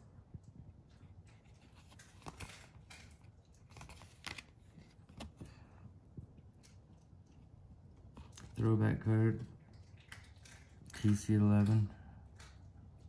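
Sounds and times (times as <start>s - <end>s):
paper cards rustling: 1.3s - 5.8s.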